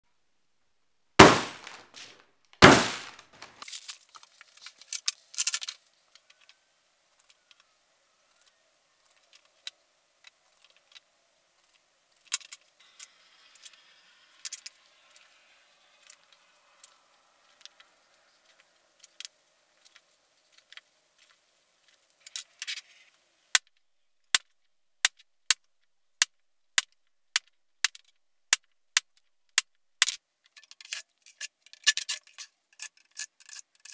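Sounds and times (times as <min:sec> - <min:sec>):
loud knocks: 0:01.2 - 0:01.8, 0:02.6 - 0:03.3.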